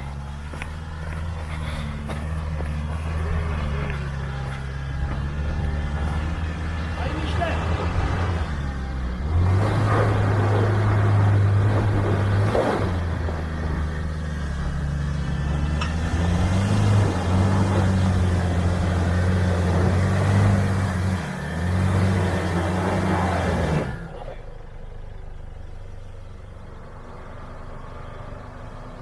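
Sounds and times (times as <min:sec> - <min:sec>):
pickup engine pulling at low speed: 0:00.0 - 0:29.0.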